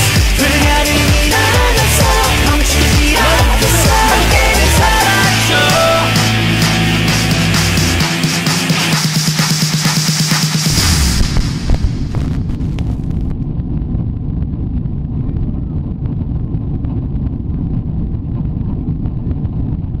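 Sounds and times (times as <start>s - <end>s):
jet engine cabin rumble: 10.7s - 20.0s.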